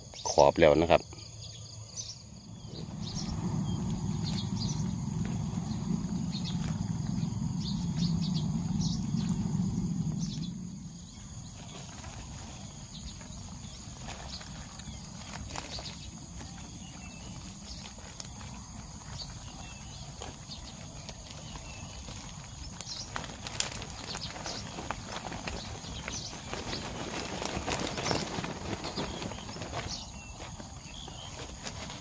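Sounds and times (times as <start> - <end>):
fish flapping against wire mesh: 20.0 - 30.1.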